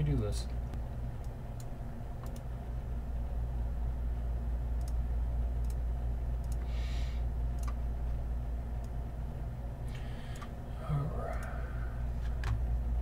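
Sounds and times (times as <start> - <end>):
steady low hum: 0.0 - 13.0
computer mouse clicks: 1.2 - 2.5, 6.4 - 6.7, 7.6 - 7.8.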